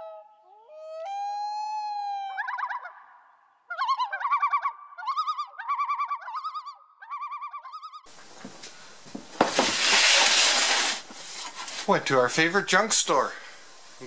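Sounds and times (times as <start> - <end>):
loon tremolo calls: 0.0 - 8.2
room noise: 8.1 - 14.0
plastic tote knocking on workbench: 9.1 - 9.8.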